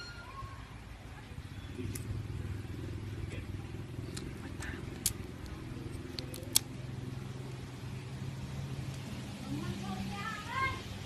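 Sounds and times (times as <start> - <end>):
sharp clicks: 4.1 - 6.8.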